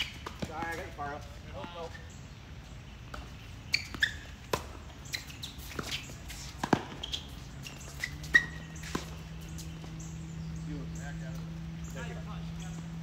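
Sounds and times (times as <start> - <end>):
ball bouncing on court: 0.0 - 1.0, 6.6 - 10.0
sneaker squeaks: 0.0 - 1.0, 3.1 - 12.9
rackets striking tennis ball: 0.0 - 2.1, 3.0 - 10.2.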